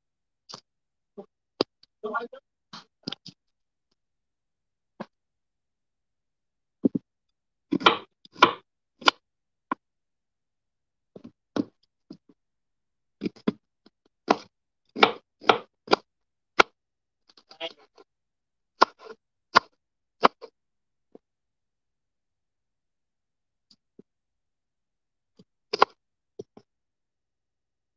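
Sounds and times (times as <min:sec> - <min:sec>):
knife chopping on wooden board: 0:07.7 - 0:09.2, 0:14.2 - 0:16.7.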